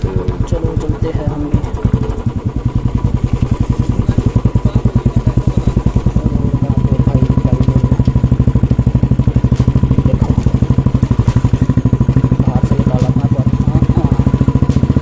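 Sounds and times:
motorcycle engine at low revs: 0.0s - 15.0s.

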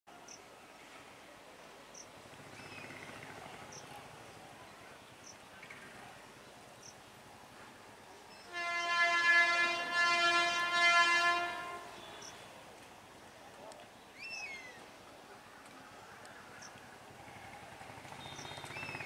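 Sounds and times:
train horn blast: 8.4s - 12.4s.

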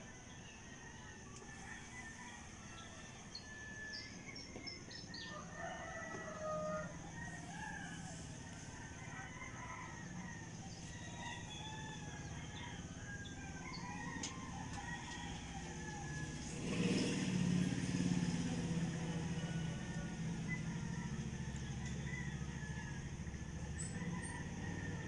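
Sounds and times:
low engine drone: 6.8s - 25.0s.

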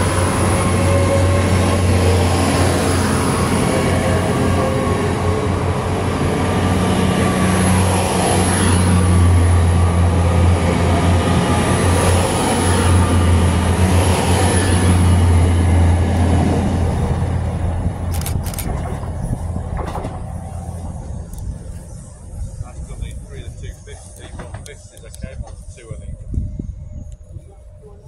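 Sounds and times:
train diesel engine drone: 0.0s - 28.0s
train wheel and rail noise: 0.0s - 28.0s.

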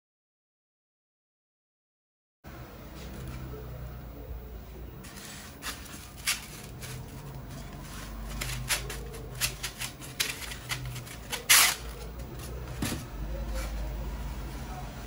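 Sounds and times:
polystyrene foam squeaking: 5.1s - 12.0s.

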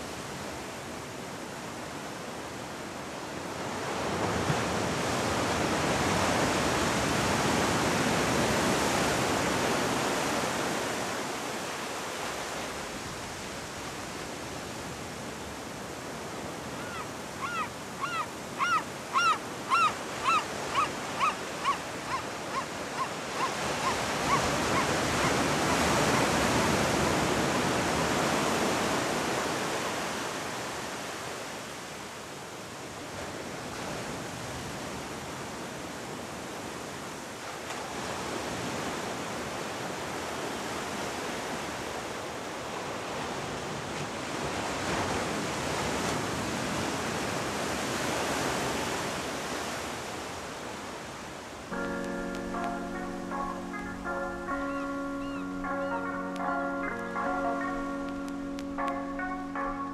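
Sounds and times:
bird giving short repeated calls: 16.8s - 24.4s.

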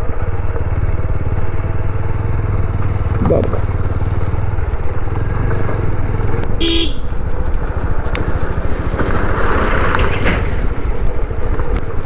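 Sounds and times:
motorcycle engine running: 0.0s - 9.9s
truck passing: 0.0s - 12.0s
horn toot: 6.6s - 7.1s.

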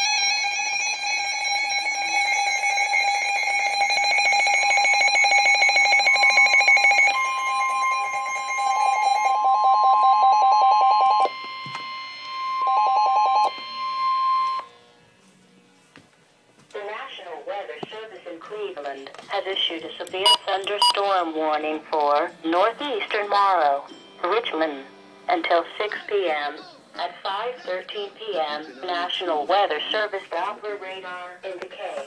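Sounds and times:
steady alarm tone: 0.0s - 14.7s, 20.2s - 21.2s
pulsing electronic alarm beep: 4.0s - 14.6s, 20.2s - 21.0s.

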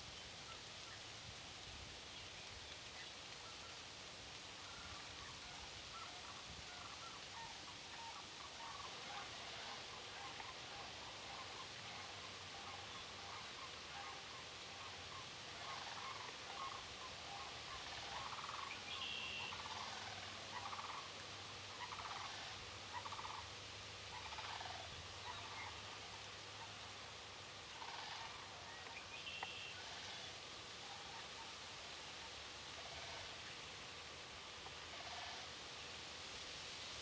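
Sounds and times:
turkey yelps: 21.7s - 23.5s, 24.1s - 25.8s, 27.8s - 30.2s.

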